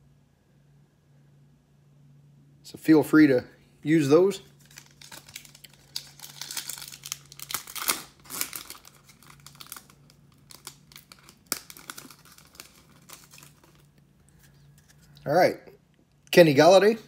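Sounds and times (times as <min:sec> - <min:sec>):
foil wrapper crinkling: 0:04.3 - 0:15.2.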